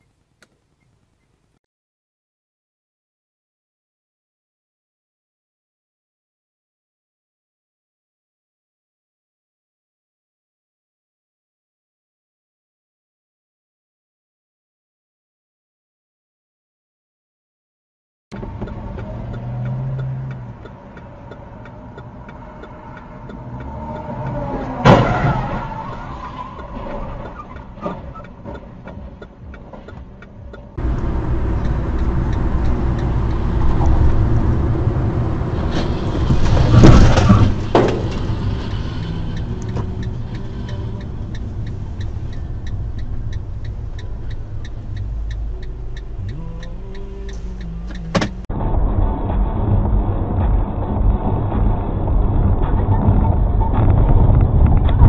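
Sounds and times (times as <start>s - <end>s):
car road noise: 18.3s - 55.0s.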